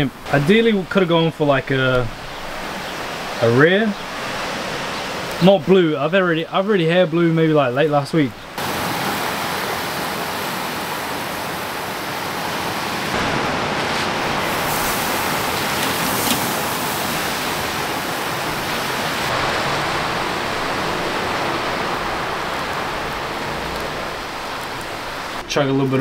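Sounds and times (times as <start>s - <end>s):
steak sizzling on grill: 14.4s - 19.4s.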